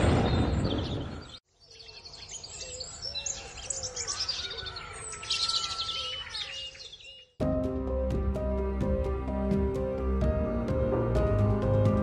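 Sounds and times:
small birds chirping and singing: 0.1s - 7.4s.

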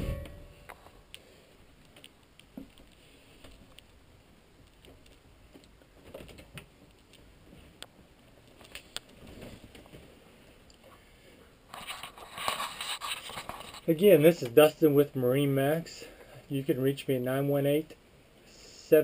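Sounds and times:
faint clicks and taps: 0.7s - 4.0s, 4.6s - 11.0s
rubbing and scraping on camera: 11.7s - 14.5s.

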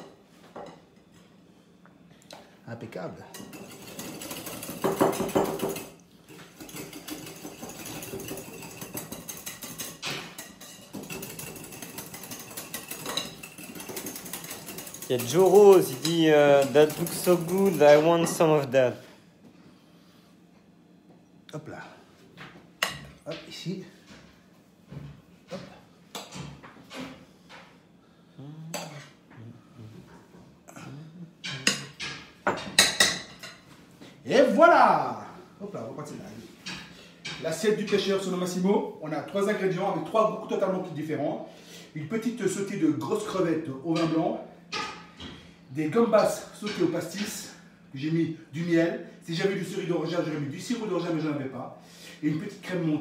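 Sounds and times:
whisk clicking against glass bowl: 6.6s - 17.9s
spoon clinking on ceramic plates: 6.6s - 18.5s, 31.4s - 33.6s.

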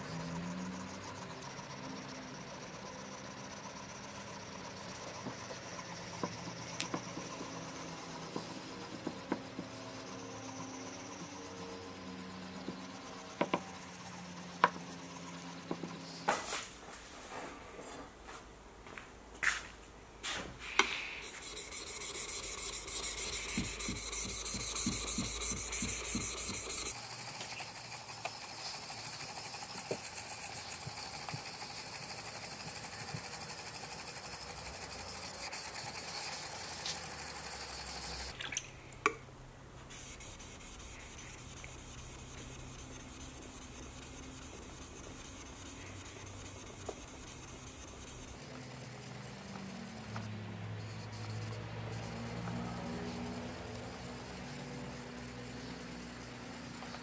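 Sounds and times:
plane iron scraping on whetstone: 21.2s - 28.7s.

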